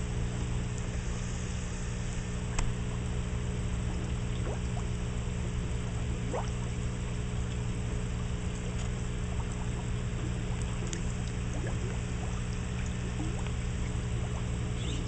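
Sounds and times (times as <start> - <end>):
steady low hum: 0.0 - 15.0
bubble plinks: 6.2 - 6.7, 8.5 - 15.0
water splashing and trickling: 8.4 - 15.0.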